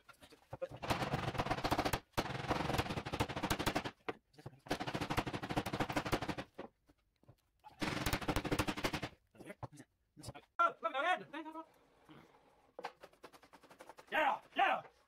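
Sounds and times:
spray can rattling when shaken: 12.9 - 14.2.

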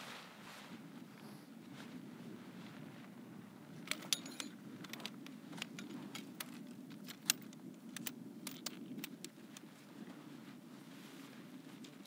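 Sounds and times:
tent poles clicking together: 3.8 - 9.7.

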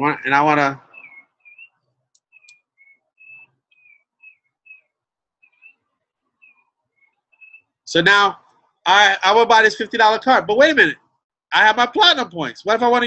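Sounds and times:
bird chirping: 0.0 - 8.9.

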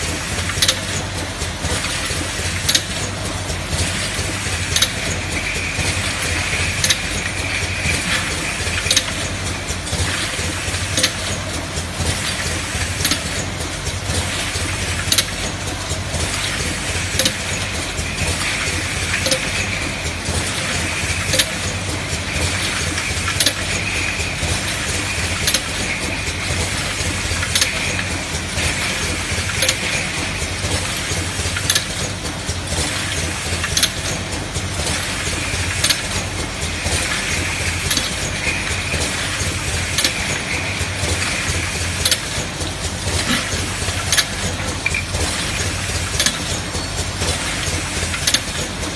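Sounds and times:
machine hum and whirring: 0.0 - 48.9
sharp machine click: 10.1 - 11.5, 16.4 - 30.4, 43.2 - 48.9.

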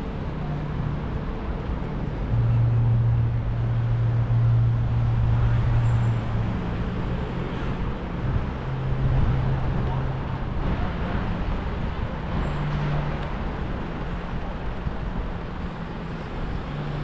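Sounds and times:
city street traffic: 0.0 - 17.0
vehicle engine running: 0.0 - 17.0.

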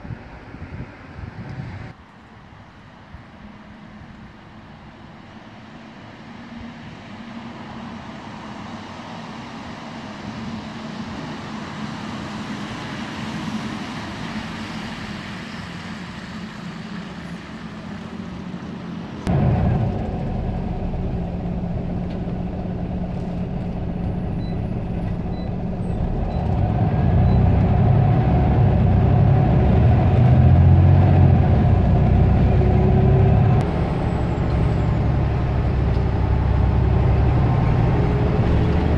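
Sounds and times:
bus diesel engine droning: 2.5 - 38.9.

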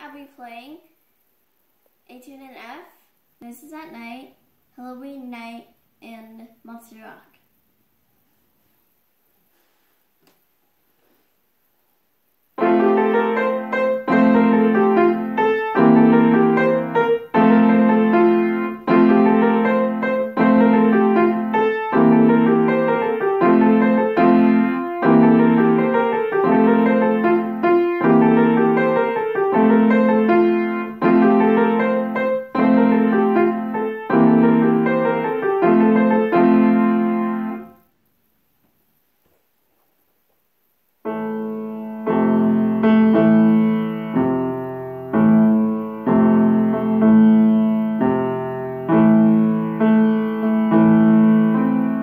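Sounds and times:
solo grand piano: 12.6 - 37.9, 41.0 - 52.0.

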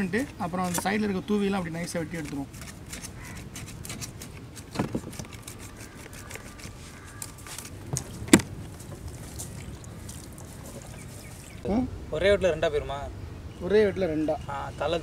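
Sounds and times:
knife scraping fish: 2.1 - 9.1.

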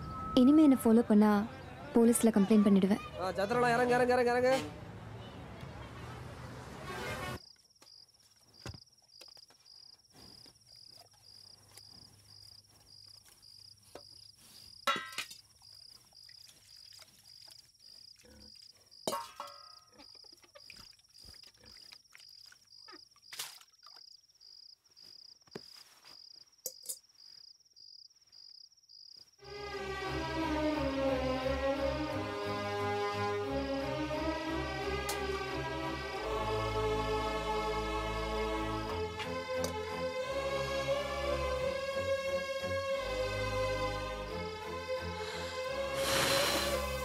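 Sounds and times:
crickets chirping: 7.4 - 29.6, 41.4 - 47.0
steel vessels clinking: 14.9 - 15.5, 19.0 - 20.0
music with low sustained tones: 29.5 - 47.0.

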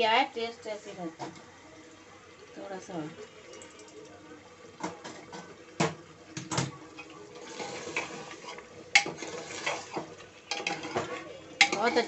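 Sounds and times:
ladle scraping a metal pot: 7.0 - 12.0.

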